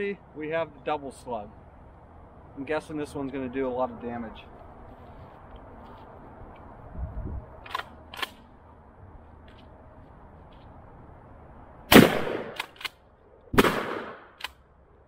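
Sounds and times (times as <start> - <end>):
shotgun blast: 11.9 - 12.7, 13.6 - 14.4.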